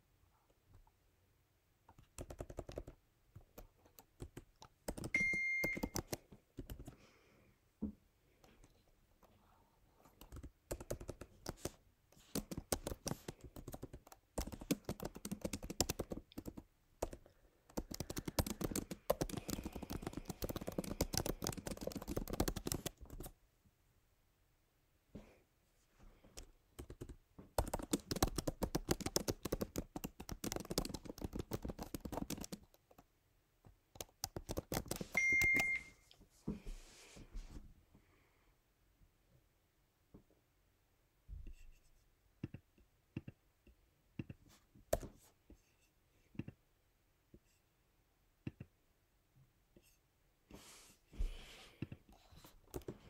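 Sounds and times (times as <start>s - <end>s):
rapid keyboard typing: 1.9s - 7.0s, 10.2s - 23.4s, 26.4s - 33.1s, 33.9s - 35.9s, 52.6s - 53.0s
short high beep: 5.2s - 5.9s, 35.2s - 36.0s.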